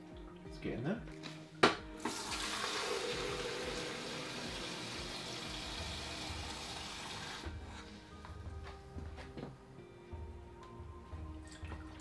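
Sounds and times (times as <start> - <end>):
tap water filling plastic jug: 1.7 - 7.6, 11.4 - 12.0.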